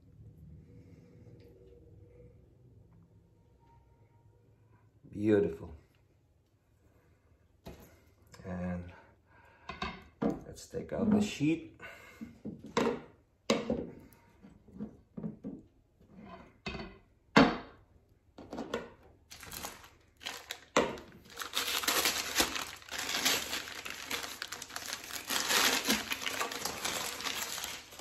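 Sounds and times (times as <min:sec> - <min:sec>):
knocks and rustles: 0:12.4 - 0:17.7
paper wrapping crinkling: 0:19.3 - 0:28.0.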